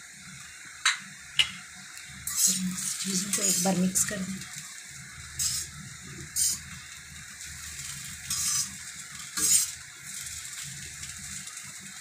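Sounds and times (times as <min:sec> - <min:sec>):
metal spatula scraping pan: 0:02.3 - 0:03.7, 0:05.4 - 0:05.7, 0:06.4 - 0:06.6, 0:08.2 - 0:09.8.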